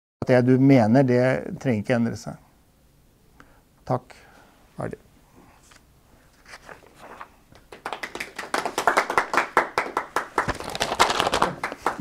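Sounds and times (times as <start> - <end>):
audience applauding: 7.7 - 12.0.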